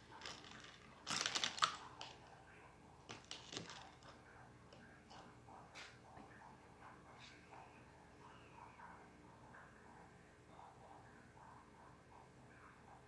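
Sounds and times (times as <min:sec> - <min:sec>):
objects handled on a table: 0:00.0 - 0:02.3, 0:03.0 - 0:06.0.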